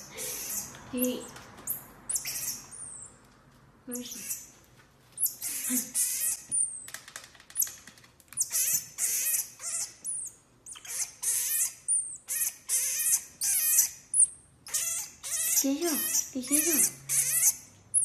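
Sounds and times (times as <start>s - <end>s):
marmoset shrill chattering: 0.2s - 0.7s, 1.7s - 3.2s, 4.1s - 4.5s, 5.2s - 6.9s, 8.4s - 18.0s.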